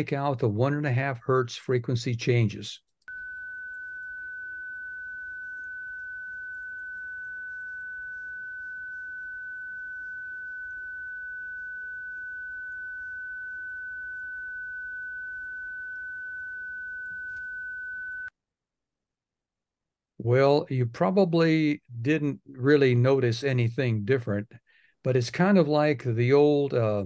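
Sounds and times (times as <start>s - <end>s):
continuous steady tone: 3.0s - 18.3s.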